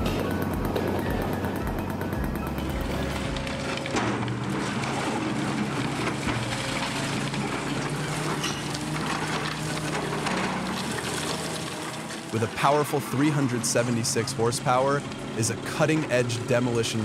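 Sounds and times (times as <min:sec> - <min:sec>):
debris falling: 0:00.0 - 0:12.4
excavator diesel engine running: 0:00.0 - 0:17.0
concrete breaking: 0:02.8 - 0:12.4.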